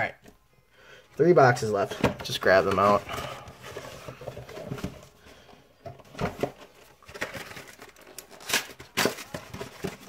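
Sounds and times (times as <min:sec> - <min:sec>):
packaging crinkling: 0:06.4 - 0:10.0
cardboard boxes knocking and tapping: 0:09.0 - 0:10.0.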